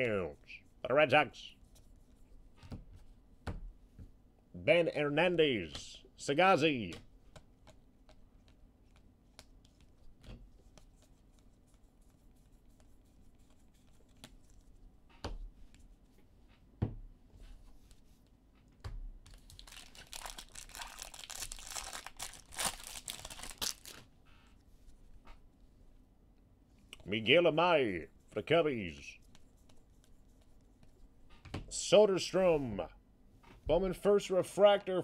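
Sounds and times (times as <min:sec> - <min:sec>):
wrapper tearing and crinkling: 0:19.3 - 0:24.0.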